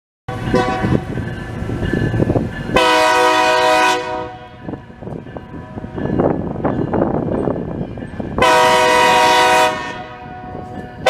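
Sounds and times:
locomotive engine rumble: 0.3s - 11.0s
train air horn blast: 0.5s - 1.1s, 2.8s - 4.6s, 8.4s - 10.5s.

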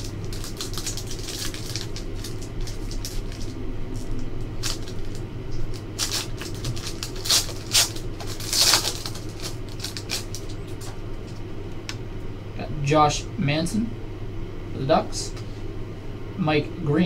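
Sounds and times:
foil wrapper crinkling and tearing: 0.0s - 11.4s
steady low hum: 0.0s - 17.0s.

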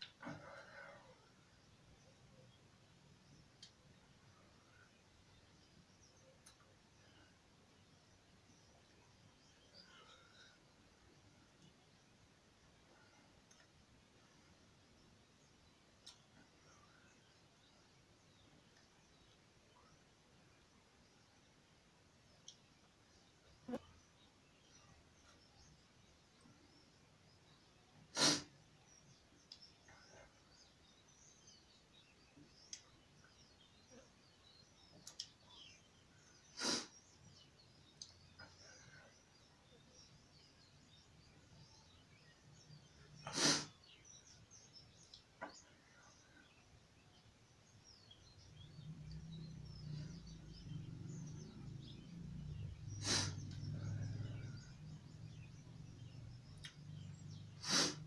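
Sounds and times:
small birds chirping: 0.0s - 58.0s
faint small clicks: 3.5s - 3.9s, 6.4s - 6.8s, 13.4s - 13.8s, 16.0s - 16.4s, 22.4s - 22.7s, 29.4s - 29.8s, 32.7s - 33.0s, 34.9s - 35.4s, 37.9s - 38.5s, 45.0s - 45.6s, 56.4s - 56.9s.

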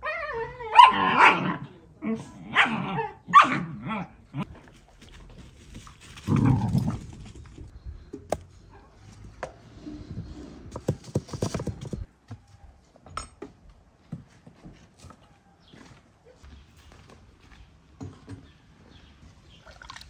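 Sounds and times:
dog barking: 0.7s - 1.6s, 2.5s - 3.8s.

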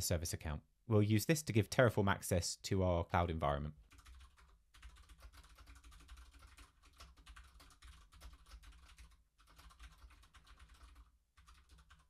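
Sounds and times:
faint rapid keyboard typing: 3.8s - 12.0s.

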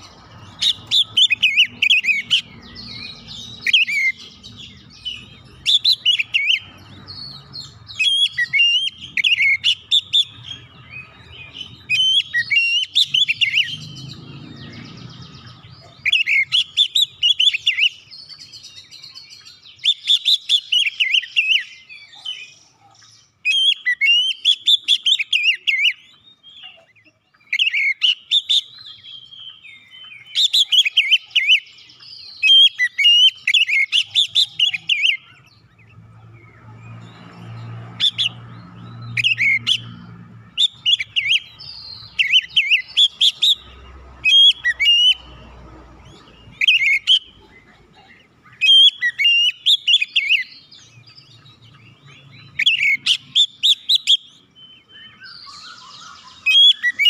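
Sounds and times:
bird singing whistled phrases: 7.6s - 13.9s, 16.0s - 22.6s, 52.5s - 57.0s.

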